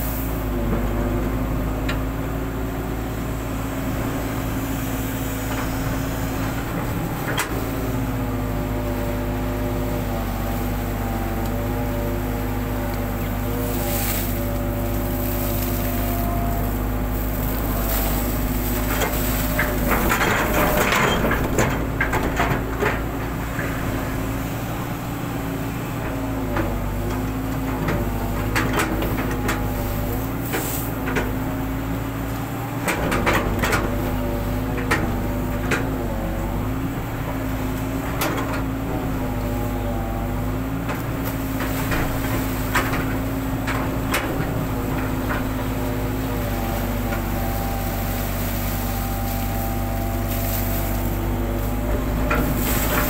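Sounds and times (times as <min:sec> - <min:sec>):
excavator diesel engine running: 0:00.0 - 0:53.0
excavator bucket clanks and knocks: 0:05.5 - 0:08.8, 0:12.5 - 0:24.0, 0:26.0 - 0:53.0.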